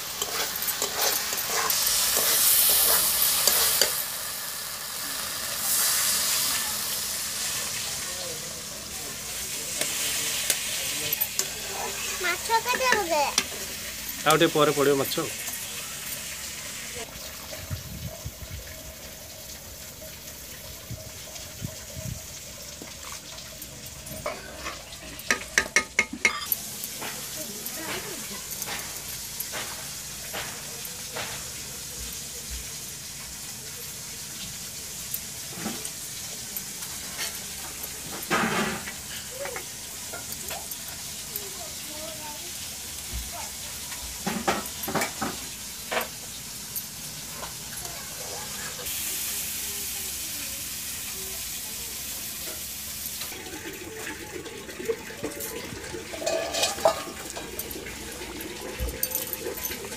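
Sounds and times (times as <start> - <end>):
stirring in a metal pan: 0.0 - 16.3, 22.4 - 46.5, 53.3 - 59.9
curry bubbling and sizzling: 0.0 - 59.9
metal lid clinking: 24.0 - 27.2, 55.2 - 59.9.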